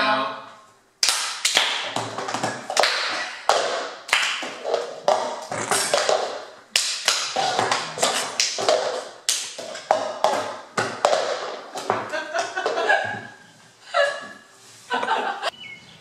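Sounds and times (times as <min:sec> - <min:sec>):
hand claps: 0:01.0 - 0:04.8, 0:05.9 - 0:09.6.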